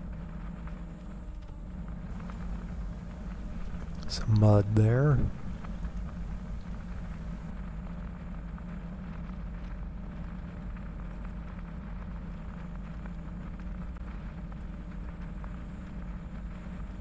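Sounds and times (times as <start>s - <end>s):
bicycle tyres rolling on gritty trail: 2.2s - 4.2s.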